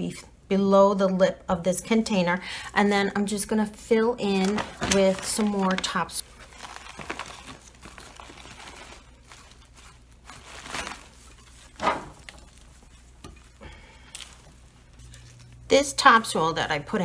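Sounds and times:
plastic bag crinkling: 4.2s - 16.4s.

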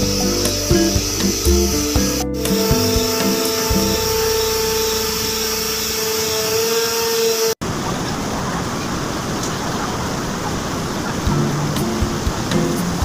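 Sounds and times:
winch machinery humming: 0.0s - 7.6s
ship engine noise: 0.0s - 13.0s.

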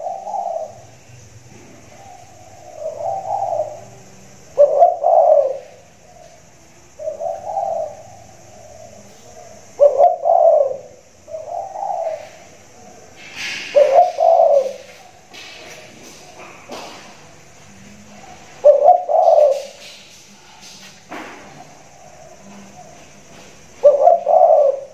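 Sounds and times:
dove cooing: 0.0s - 24.9s.

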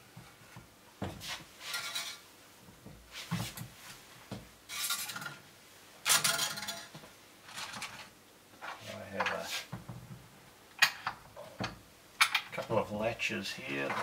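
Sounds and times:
metal rods and plastic parts rattling: 6.0s - 6.9s.

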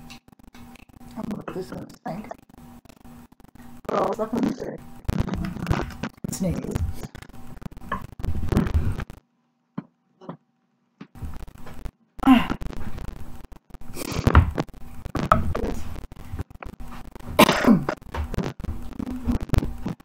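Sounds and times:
knocks and shuffling: 13.9s - 20.0s
woman coughing: 17.4s - 18.0s.

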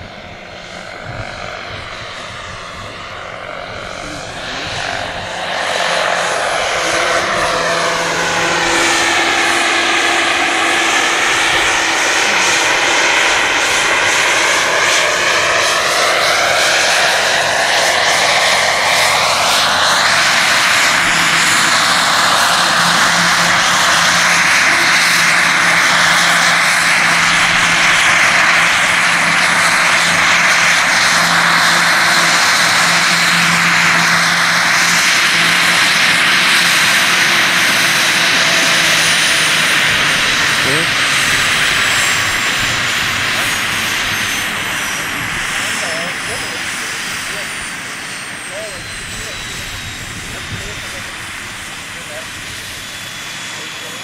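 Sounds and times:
model helicopter rotor whine: 0.0s - 54.0s.

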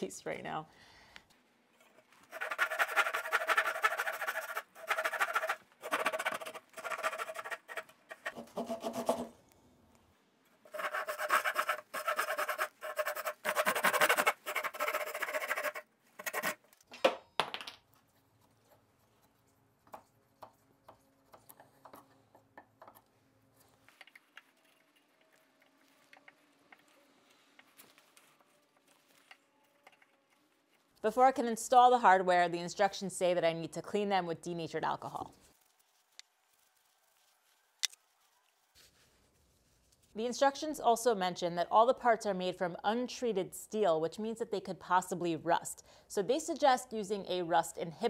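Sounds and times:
hand saw rasping through wood: 10.7s - 16.6s.

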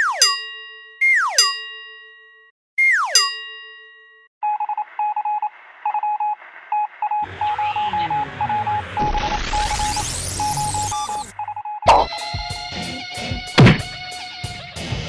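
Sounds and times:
short electronic beeps: 4.4s - 12.1s
cartoon boing sound effect: 11.9s - 12.1s
music: 12.1s - 15.0s.

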